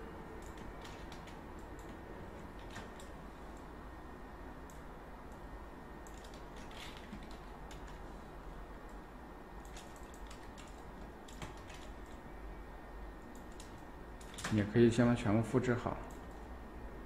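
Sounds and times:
steady low hum: 0:00.0 - 0:17.0
keyboard keystrokes: 0:00.4 - 0:02.0, 0:06.0 - 0:08.0, 0:09.6 - 0:12.2.

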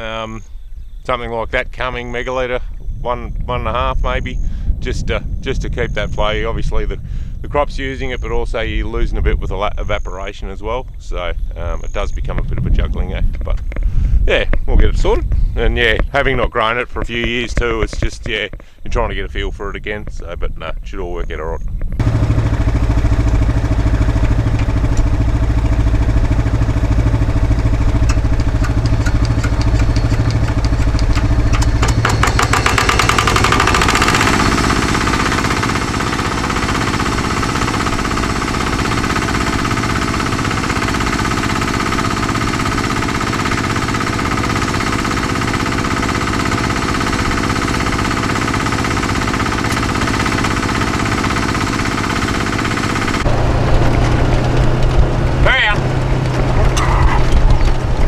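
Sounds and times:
water pump engine running: 0:22.0 - 0:58.0.

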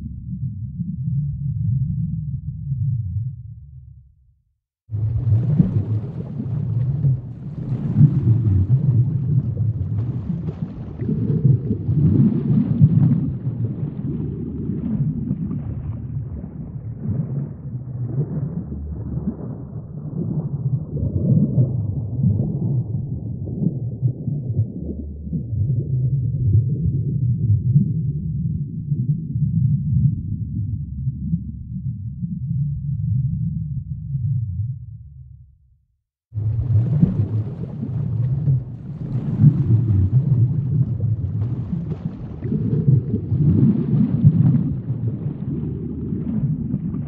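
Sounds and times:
deep muffled rumbling: 0:00.0 - 0:04.2, 0:04.9 - 0:35.6, 0:36.4 - 0:47.0
faint crackle: 0:04.9 - 0:25.8, 0:36.4 - 0:47.0.

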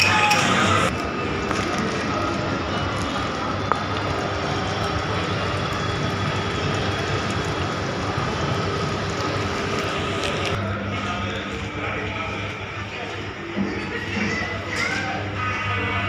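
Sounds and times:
bubbling water: 0:01.2 - 0:10.6
air pump hum: 0:02.0 - 0:11.1.

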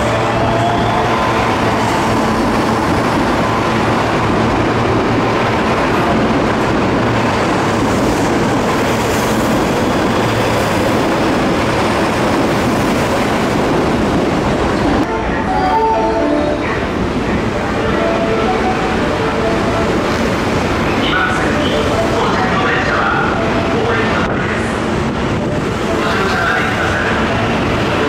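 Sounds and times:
train rushing past on rails: 0:00.0 - 0:28.0.

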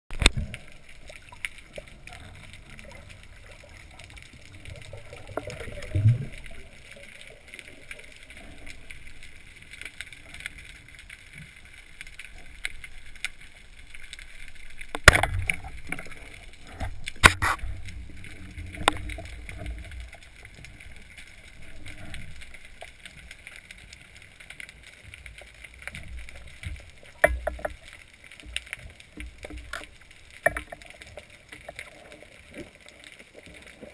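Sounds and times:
muffled underwater hiss: 0:00.1 - 0:33.9
underwater clicks: 0:00.1 - 0:33.9.

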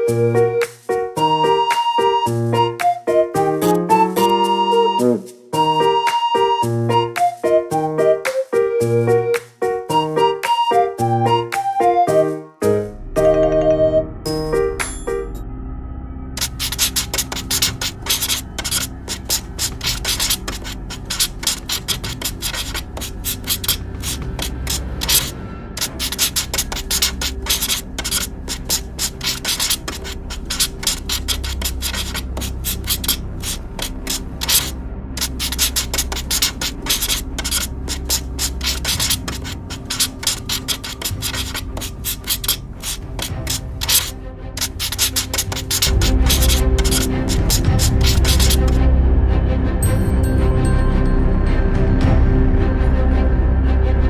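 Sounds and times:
pen scratching on paper: 0:16.4 - 0:48.8.

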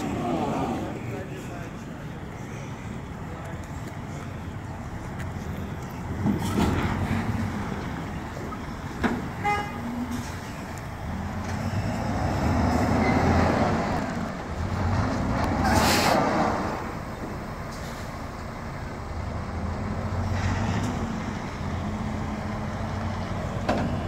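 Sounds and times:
diesel engine rumbling: 0:00.0 - 0:24.0
air brake hiss: 0:15.6 - 0:16.2.

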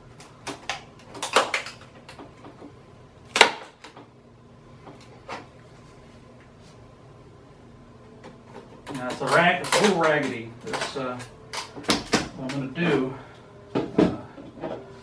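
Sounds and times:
fiberglass mold cracking apart: 0:00.1 - 0:02.3, 0:03.3 - 0:04.0, 0:08.8 - 0:12.7.

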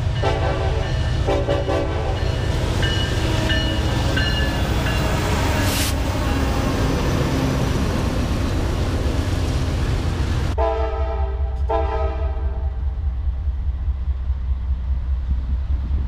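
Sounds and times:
freight train rumbling past: 0:00.0 - 0:16.0
locomotive air horn chord: 0:00.2 - 0:02.3, 0:10.6 - 0:12.8.

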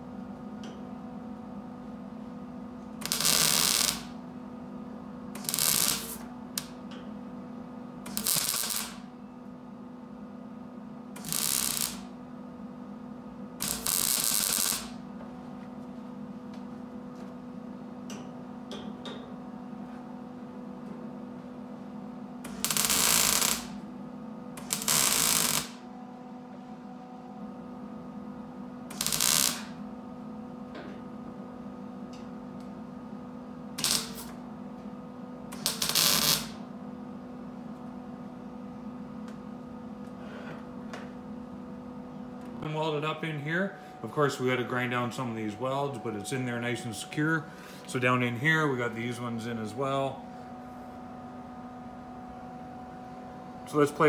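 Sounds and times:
welder crackling: 0:03.0 - 0:04.2, 0:05.4 - 0:06.8, 0:08.0 - 0:09.0, 0:11.2 - 0:12.1, 0:13.6 - 0:15.0, 0:22.5 - 0:23.8, 0:24.6 - 0:25.8, 0:28.9 - 0:29.7, 0:33.8 - 0:34.4, 0:35.5 - 0:36.6
low hum: 0:37.2 - 0:54.0.

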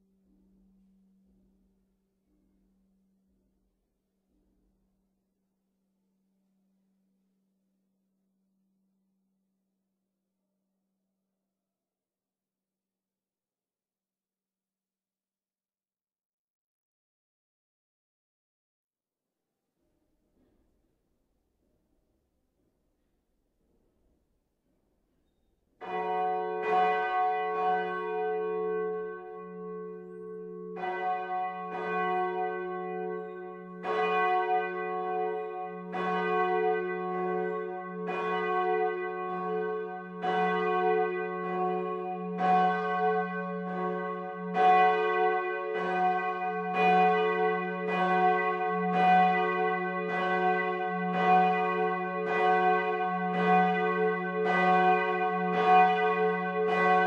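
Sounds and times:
large church bell ringing: 0:25.8 - 0:57.0.

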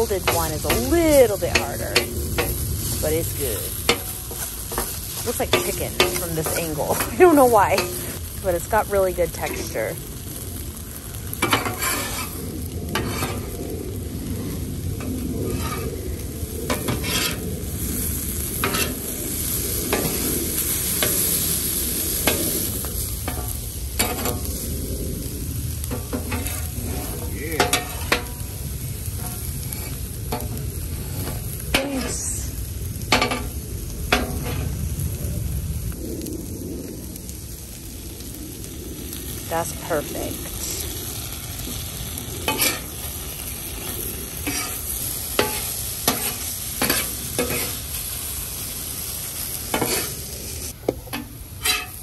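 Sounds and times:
metal spatula scraping griddle: 0:00.0 - 0:08.2, 0:11.4 - 0:13.7, 0:14.3 - 0:24.6, 0:25.9 - 0:34.8, 0:42.4 - 0:48.1, 0:49.7 - 0:52.0
food sizzling on griddle: 0:00.0 - 0:52.0.

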